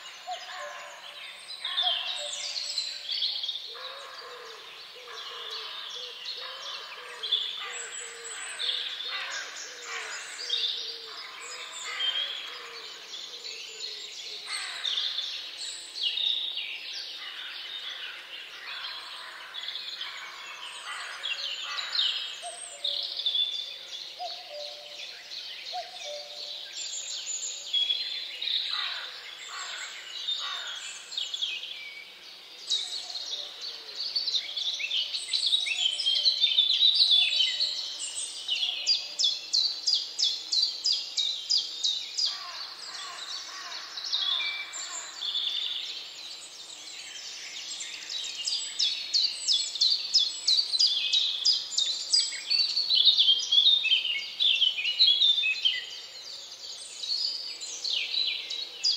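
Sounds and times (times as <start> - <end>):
small birds chirping and singing: 0.0 - 58.9.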